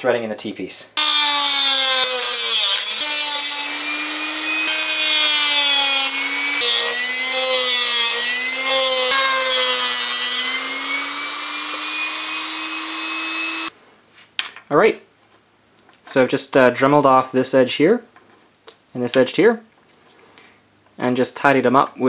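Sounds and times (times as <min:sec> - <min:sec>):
rotary tool whining: 0:01.0 - 0:13.7.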